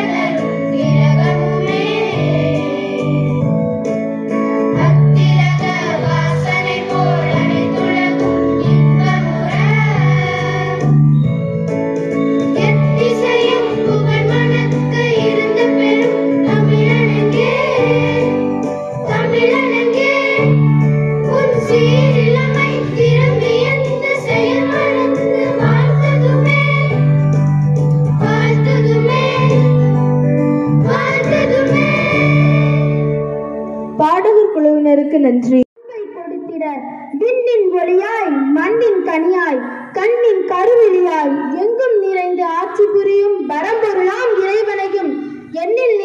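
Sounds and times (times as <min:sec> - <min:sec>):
electronic keyboard chords: 0:00.0 - 0:34.8
girls singing through a pa: 0:04.8 - 0:10.8, 0:19.1 - 0:20.5, 0:21.3 - 0:27.0.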